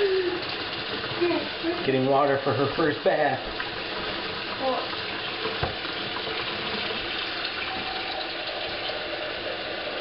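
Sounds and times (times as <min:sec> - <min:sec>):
tap running into steel sink: 0:05.4 - 0:08.0.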